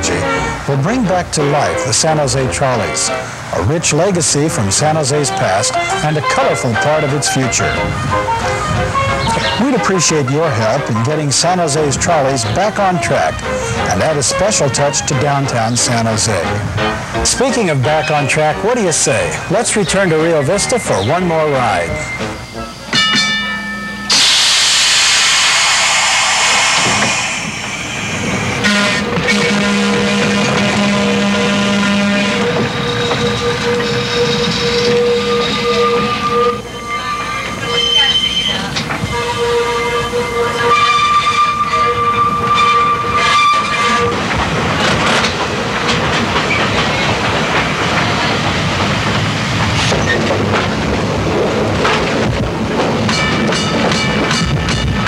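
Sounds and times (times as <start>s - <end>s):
wheels rumbling and clattering on track: 0.0s - 24.3s, 26.8s - 55.0s
trolley car rushing hiss: 0.0s - 55.0s
steady high tone: 17.6s - 29.1s.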